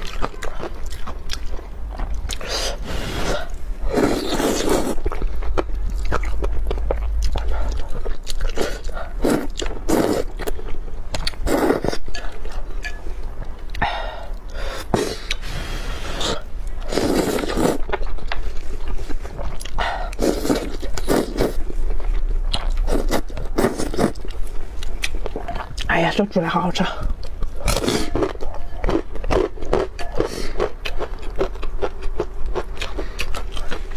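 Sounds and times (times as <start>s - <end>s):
wet chewing: 0.0s - 13.8s, 16.2s - 25.9s, 27.1s - 33.9s
person slurping noodles: 2.3s - 5.0s, 8.5s - 10.3s, 11.4s - 12.0s, 14.6s - 17.8s, 20.1s - 21.6s, 22.9s - 24.2s.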